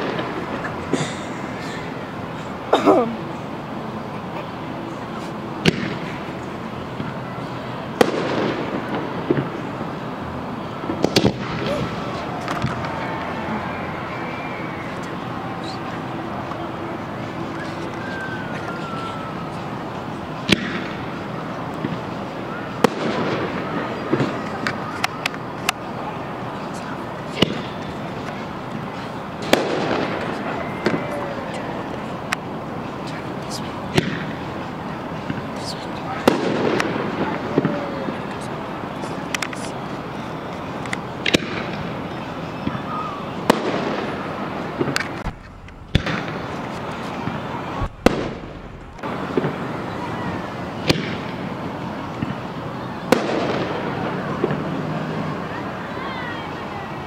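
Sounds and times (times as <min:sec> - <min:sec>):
fireworks bangs: 0:00.0 - 0:02.4, 0:05.6 - 0:55.6
steady background noise: 0:00.0 - 0:57.0
crackling firework pops: 0:05.6 - 0:06.1, 0:08.0 - 0:09.6, 0:10.9 - 0:13.0, 0:20.4 - 0:21.1, 0:27.3 - 0:31.0, 0:33.9 - 0:34.4, 0:35.3 - 0:38.5, 0:40.8 - 0:41.9, 0:43.4 - 0:44.2, 0:44.8 - 0:49.7, 0:50.8 - 0:51.4, 0:53.1 - 0:53.8
firework shells bursting: 0:43.4 - 0:49.7.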